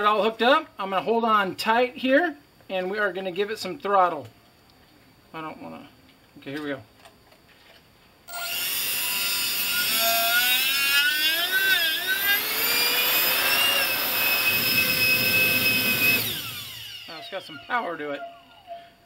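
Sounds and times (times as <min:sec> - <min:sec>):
electric fan high whine: 0:08.2 - 0:19.0.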